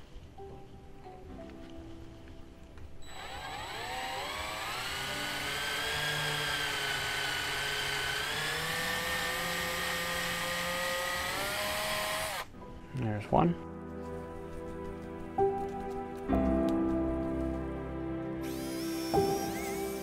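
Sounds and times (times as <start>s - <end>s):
power drill motor whine: 3.0s - 12.5s, 18.4s - 20.0s.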